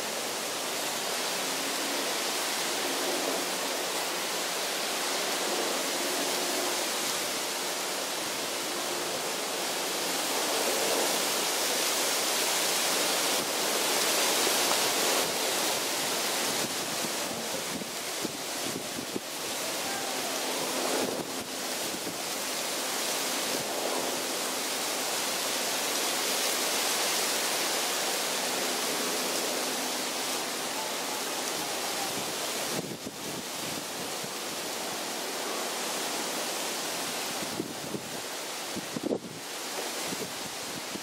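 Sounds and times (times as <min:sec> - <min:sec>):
strong wind through palm fronds: 0:00.0 - 0:41.0.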